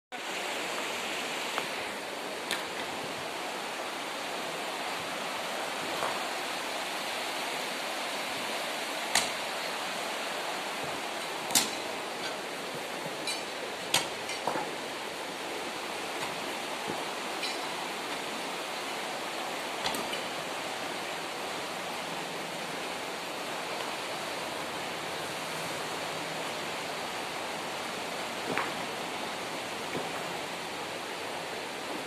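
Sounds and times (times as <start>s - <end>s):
river water rushing over stones: 0.2s - 32.0s
sharp clicks or knocks: 9.1s - 9.4s, 11.5s - 12.4s.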